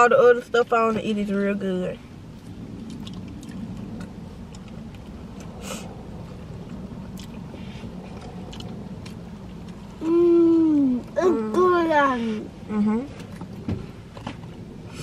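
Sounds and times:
low hum inside car: 0.0 - 15.0
people chewing: 2.8 - 10.4.

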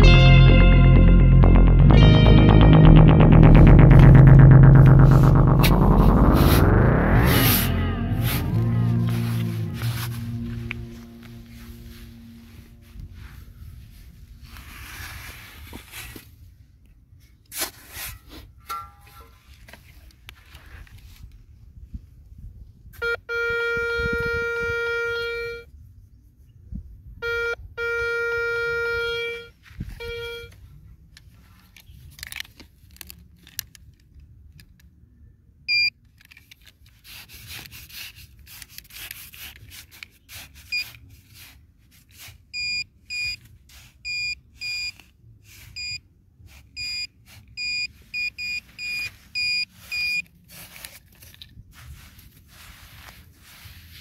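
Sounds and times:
metal detector tone: 27.2 - 30.5, 42.6 - 43.4, 46.8 - 50.3.

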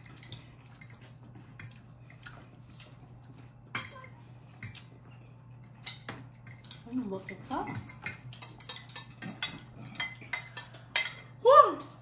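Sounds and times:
utensils clicking against ceramic bowls: 5.8 - 11.4.

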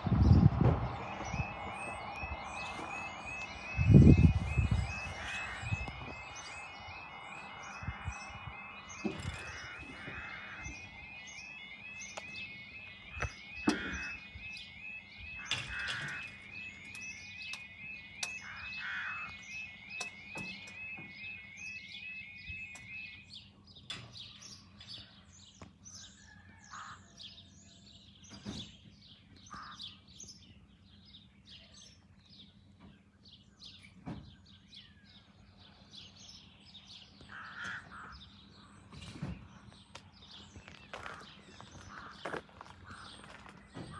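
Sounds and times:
level crossing alarm warbling: 0.0 - 23.8, 35.1 - 43.9
small birds chirping: 28.0 - 43.9.

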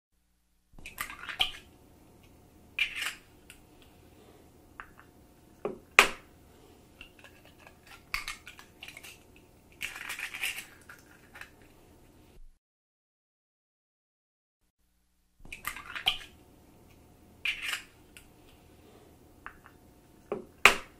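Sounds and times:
eggshells cracking: 7.0 - 11.6.

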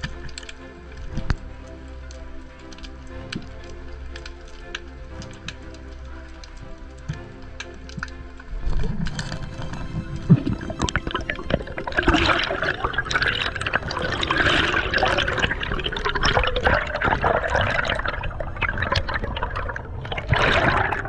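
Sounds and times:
underwater bubbling: 4.2 - 21.0.

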